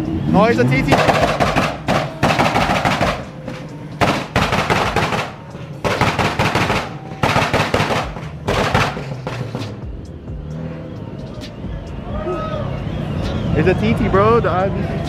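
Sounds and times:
car engine revving: 0:00.0 - 0:15.0
exhaust pops and bangs: 0:00.7 - 0:10.0.

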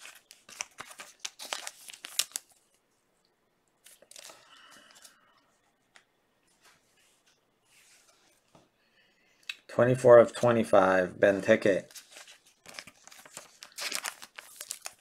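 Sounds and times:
card and plastic rustling: 0:00.0 - 0:02.8, 0:03.8 - 0:05.2, 0:11.8 - 0:15.0
plastic sleeves crinkling: 0:00.0 - 0:02.8, 0:03.8 - 0:05.2, 0:11.7 - 0:15.0.

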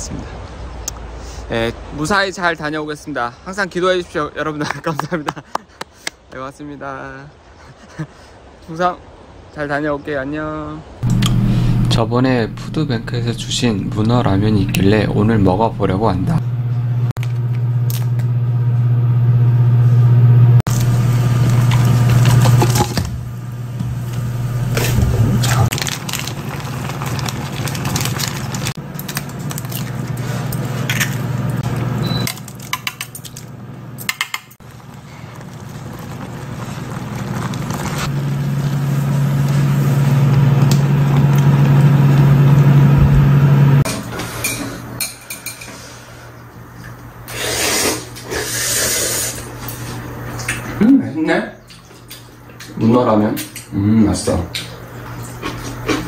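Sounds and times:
steady low hum: 0:11.0 - 0:34.1
packaging crinkling: 0:25.4 - 0:31.3, 0:34.6 - 0:38.7.

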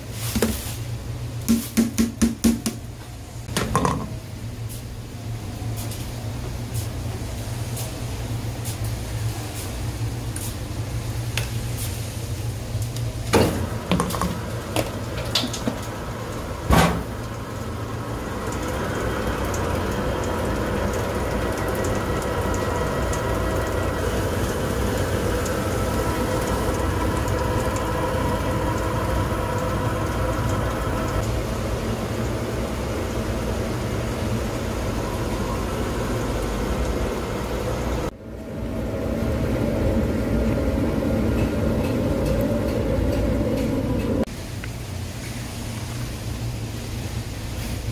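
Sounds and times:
rice mill motor hum: 0:12.6 - 0:44.3.

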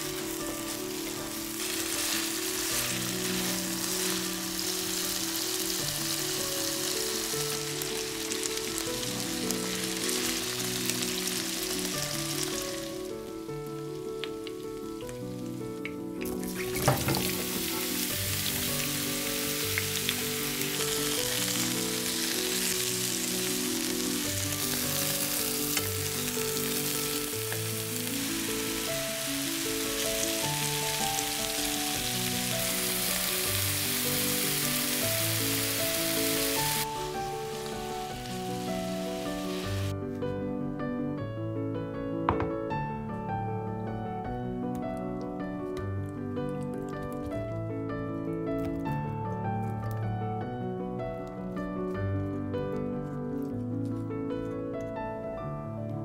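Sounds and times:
food sizzling in frying pan: 0:00.0 - 0:39.9
soft background music: 0:00.0 - 0:56.0
vegetable chunks clattering into pan: 0:16.3 - 0:18.6.

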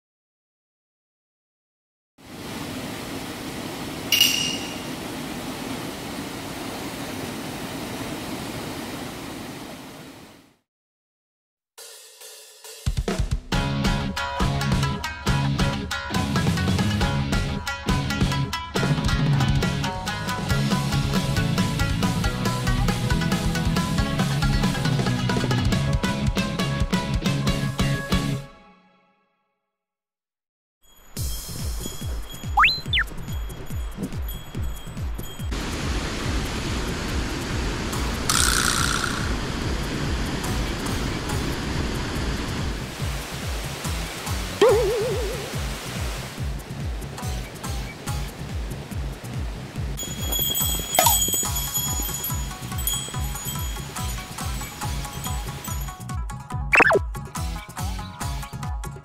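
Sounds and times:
stream water rushing: 0:02.2 - 0:10.4, 0:35.5 - 0:47.0, 0:47.6 - 0:55.8
metallic clink: 0:04.1 - 0:04.9, 0:50.2 - 0:54.2
high pitch sweep: 0:56.8 - 0:57.0.

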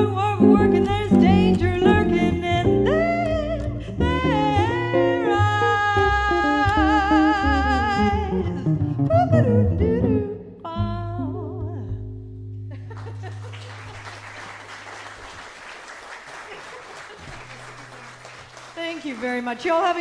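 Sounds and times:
person singing with vibrato: 0:00.0 - 0:11.9
jazz guitar: 0:00.0 - 0:13.0
audience applauding: 0:13.0 - 0:20.0.

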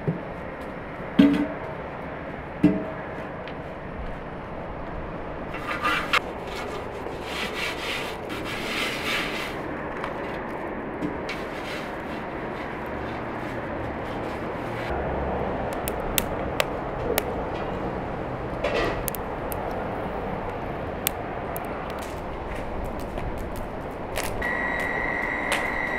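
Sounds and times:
hand scrubbing metal pot: 0:05.5 - 0:09.7
wood fire crackling: 0:15.5 - 0:25.9.

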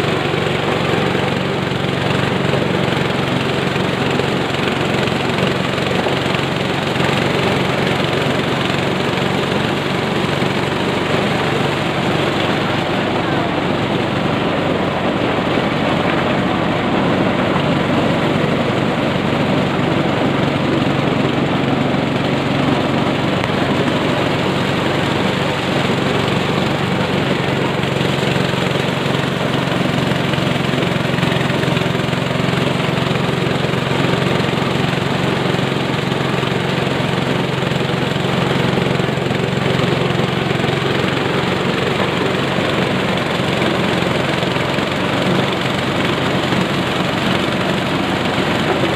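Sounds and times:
corn sheller shelling: 0:00.0 - 0:48.9
engine drone: 0:00.0 - 0:48.9.

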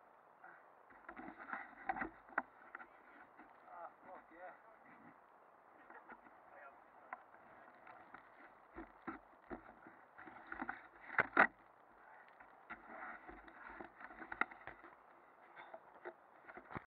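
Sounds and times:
camera handling knocks and rubbing: 0:01.0 - 0:03.5, 0:07.9 - 0:11.6
low hiss: 0:02.2 - 0:10.2.

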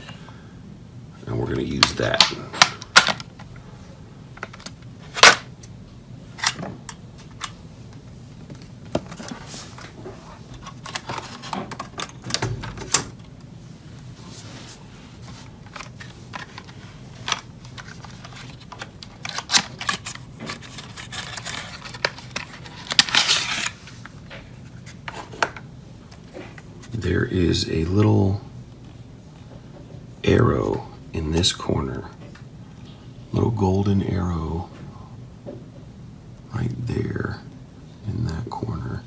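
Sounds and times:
plastic case crackling: 0:08.5 - 0:13.4, 0:15.6 - 0:23.9.

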